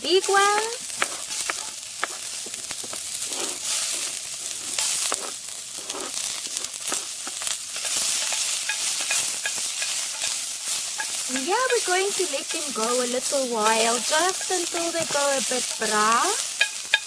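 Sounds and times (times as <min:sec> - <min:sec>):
onions sizzling in oil: 0:00.0 - 0:17.0
wooden spoon knocking and scraping: 0:00.3 - 0:03.1, 0:06.8 - 0:17.0.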